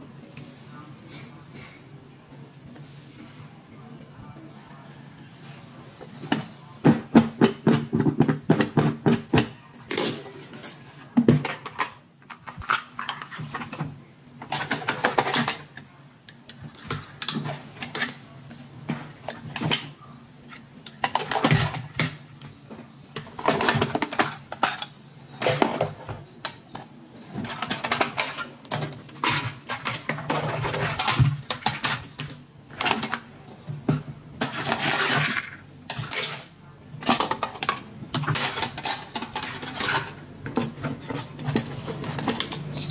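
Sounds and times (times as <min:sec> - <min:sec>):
plastic toys clicking and tapping: 0:11.2 - 0:42.9.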